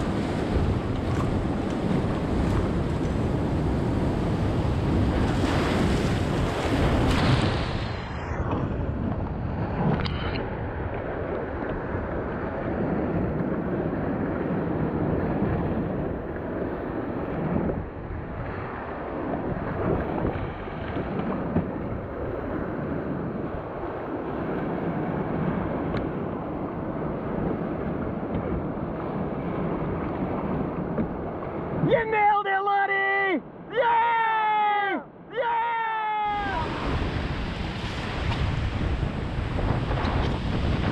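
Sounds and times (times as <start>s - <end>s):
wave crashing over boat: 0.0s - 10.4s, 36.2s - 40.9s
rushing water: 0.0s - 14.2s, 35.4s - 40.9s
wind buffeting microphone: 0.0s - 31.9s, 36.3s - 40.9s.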